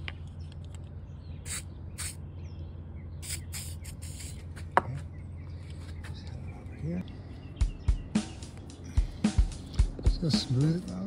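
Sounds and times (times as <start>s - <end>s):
aerosol can spraying: 1.5s - 2.2s, 3.2s - 4.5s.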